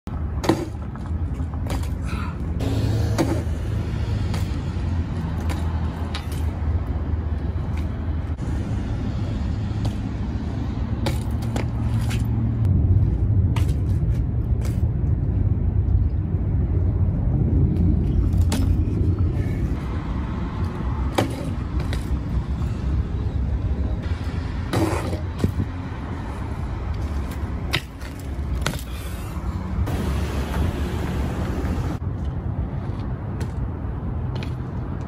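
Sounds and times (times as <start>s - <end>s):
low rumble: 12.5s - 20.1s
bike tyres rolling on asphalt: 24.0s - 33.7s.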